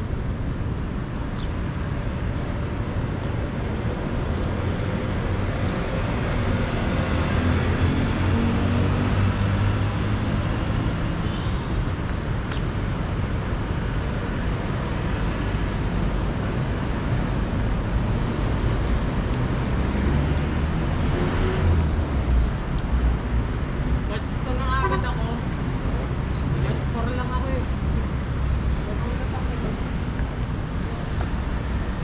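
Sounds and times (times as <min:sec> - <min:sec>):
traffic rumble: 0:00.0 - 0:32.0
short high-pitched chirps: 0:21.8 - 0:23.1, 0:23.9 - 0:25.0.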